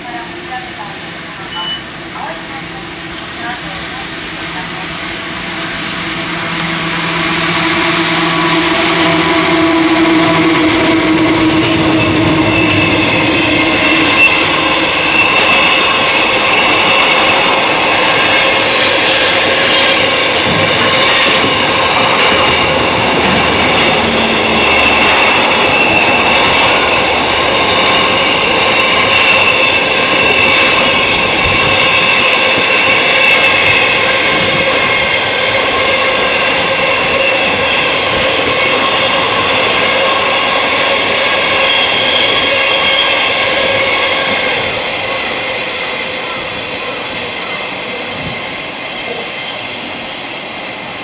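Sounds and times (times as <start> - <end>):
freight train wheels rumbling: 0.0 - 51.0
high ringing tones: 11.6 - 35.2.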